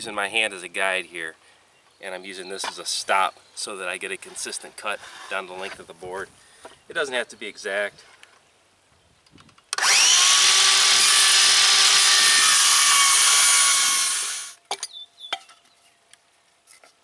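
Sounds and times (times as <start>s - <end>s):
circular saw cutting wood: 9.8s - 14.6s.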